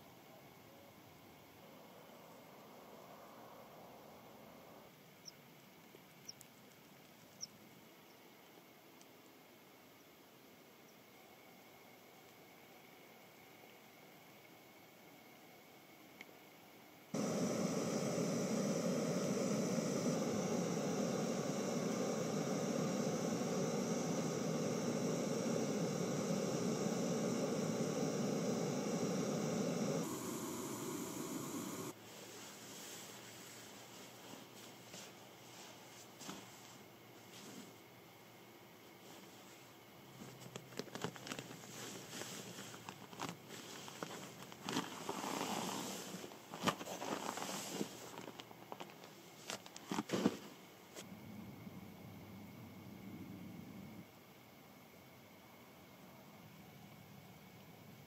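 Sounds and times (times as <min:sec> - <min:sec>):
camping stove hissing: 0:17.2 - 0:32.0
nylon bag rustling and crinkling: 0:40.8 - 0:48.4.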